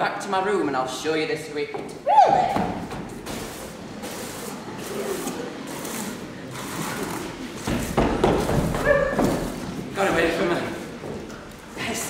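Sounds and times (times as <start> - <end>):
brooms sweeping a floor: 2.8 - 11.1.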